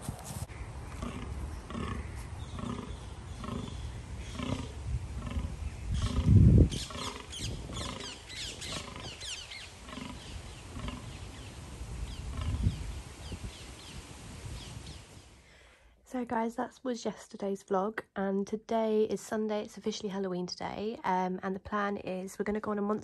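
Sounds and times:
deer groaning: 0.9s - 9.3s.

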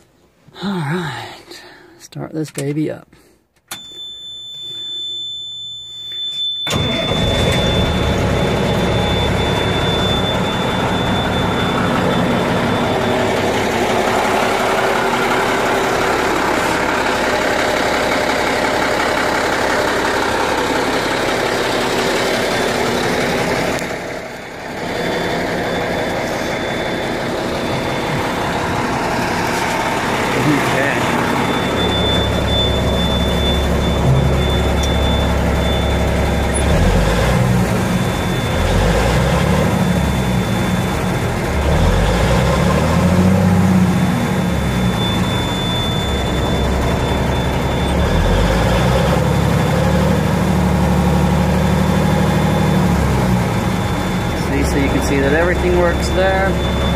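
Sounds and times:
diesel engine starting and idling: 6.4s - 56.9s.

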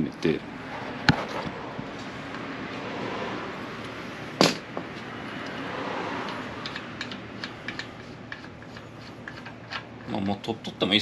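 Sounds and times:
metallic crack of bolt loosening: 6.2s - 10.1s.

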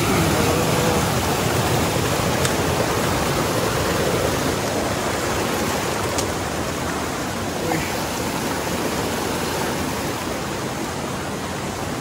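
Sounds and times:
stream rushing over rocks: 0.0s - 12.0s.

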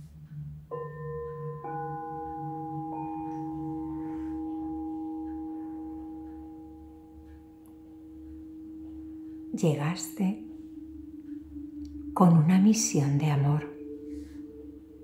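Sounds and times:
low steady drone: 0.0s - 15.0s
singing bowl tones: 0.0s - 15.0s.

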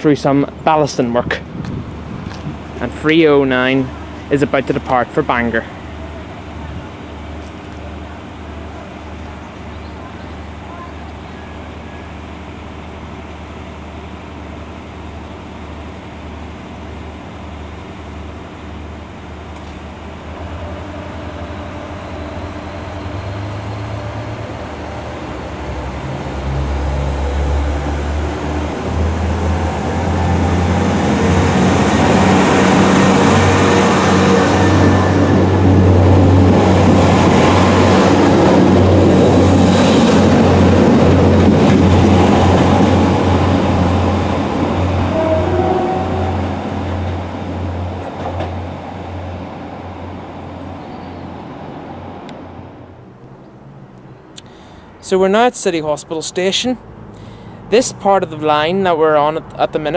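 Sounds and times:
diesel train engine: 0.0s - 59.9s
train wheel noise: 16.8s - 52.8s.

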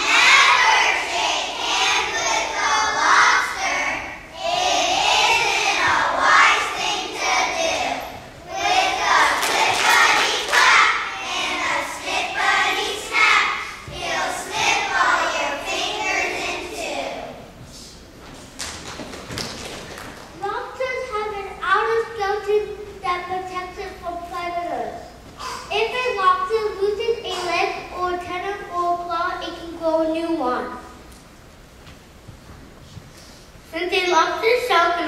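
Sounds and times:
children singing together: 0.0s - 17.4s.

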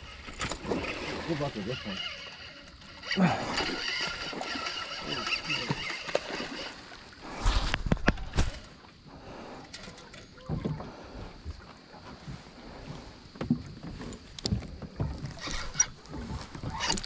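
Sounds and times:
voices: 0.6s - 6.1s, 8.1s - 11.4s.

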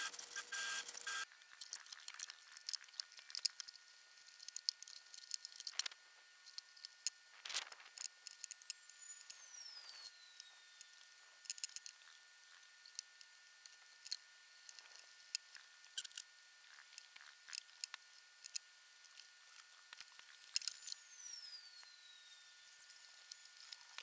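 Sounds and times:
faint ticks and clicks: 1.4s - 9.4s, 10.4s - 21.0s.

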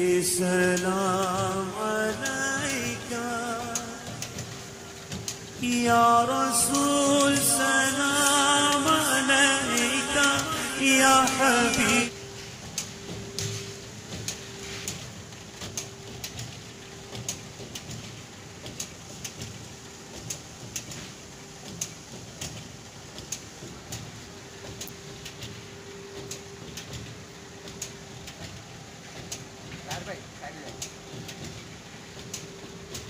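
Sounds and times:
fabric machine humming: 0.0s - 33.0s
sharp machine clicks: 0.0s - 33.0s.

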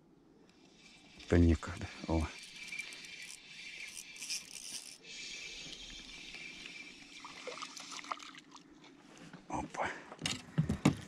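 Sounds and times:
fishing reel being cranked: 0.6s - 8.4s.

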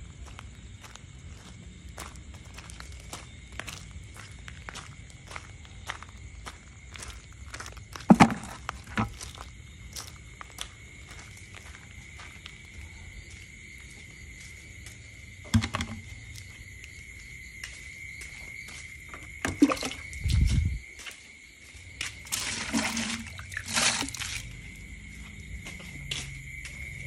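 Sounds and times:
night insects trilling: 0.0s - 27.0s
plastic buckets knocking: 8.0s - 9.2s, 15.4s - 16.1s, 19.4s - 20.2s, 22.3s - 24.3s.

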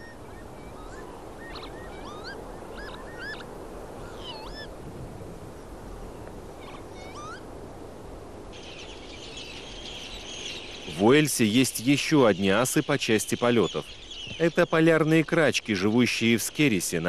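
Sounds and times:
lapwing wheezy calls: 0.8s - 4.7s, 6.6s - 7.4s.

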